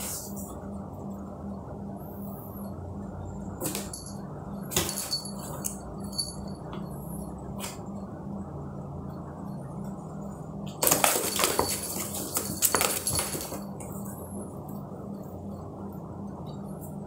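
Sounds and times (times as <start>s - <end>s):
steady low hum: 0.0s - 17.0s
metallic jingle: 3.8s - 6.7s, 11.2s - 13.7s.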